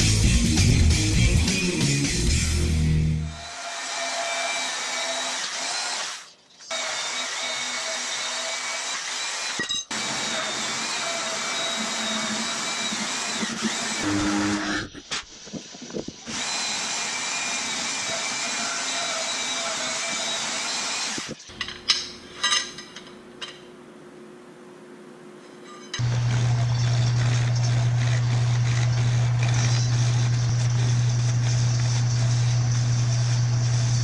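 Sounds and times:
band saw cutting steel: 2.2 - 15.1, 16.3 - 21.4, 26.0 - 34.0
metal tubes clinking: 21.4 - 23.7, 25.5 - 32.5
metal lathe running: 26.0 - 34.0.

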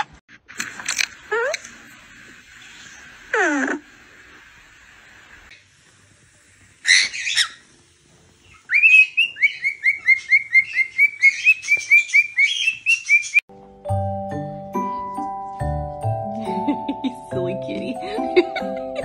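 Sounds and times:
cockatiel chirping: 8.6 - 13.4.

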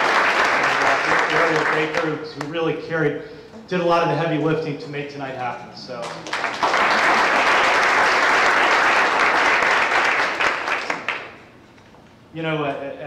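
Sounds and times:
audience applauding: 0.0 - 2.5, 6.0 - 11.4.

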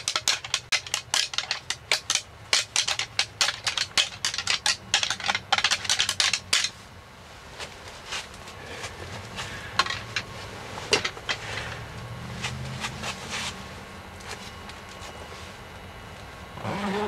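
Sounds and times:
gear clicking and knocking: 0.0 - 6.7
faint low hum: 0.0 - 17.0.

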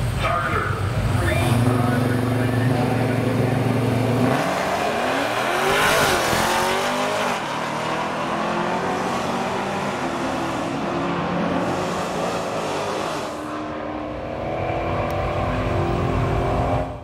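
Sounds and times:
drag car engine accelerating: 0.0 - 17.0.

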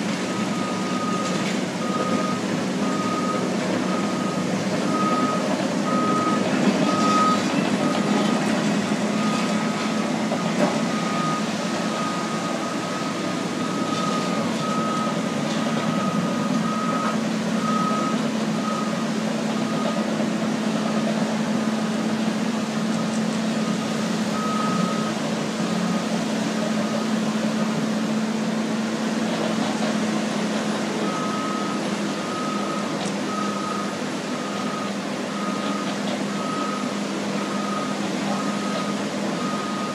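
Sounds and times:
diesel bulldozers running: 0.0 - 39.9
backup alarm beeping: 0.3 - 8.1, 10.4 - 19.0.

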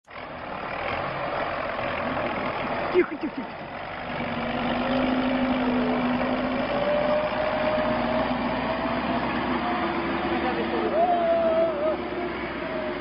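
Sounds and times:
car engine running under load: 0.1 - 13.0.

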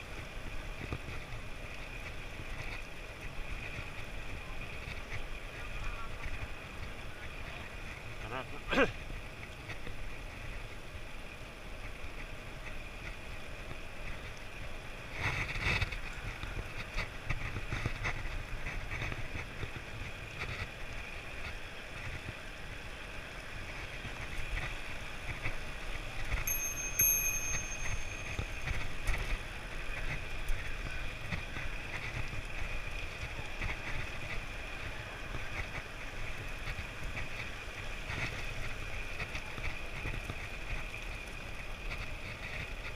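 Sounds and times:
bike tyre noise on asphalt: 0.0 - 42.9
brief high ring: 26.5 - 29.0.

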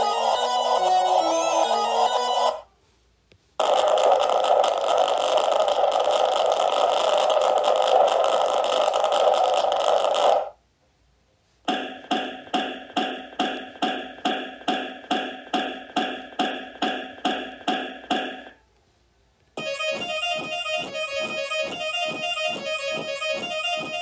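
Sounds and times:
pulsing synth loop: 19.6 - 24.0
repeated keyboard note: 19.6 - 24.0.

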